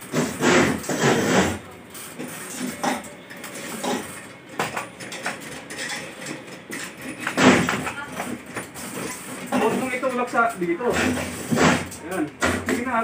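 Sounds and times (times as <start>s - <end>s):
metallic clinks and knocks: 2.6s - 9.8s.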